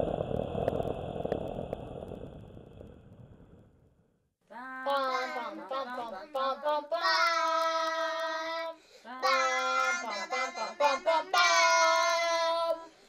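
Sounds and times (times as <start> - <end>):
child singing wordlessly: 4.5 - 13.0.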